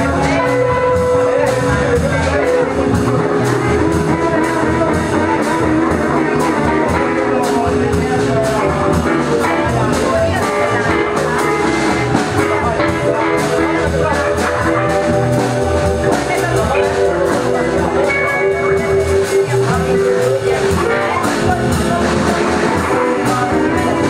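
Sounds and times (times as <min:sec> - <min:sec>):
drum kit steady beat: 0:00.0 - 0:24.0
guitar: 0:00.0 - 0:24.0.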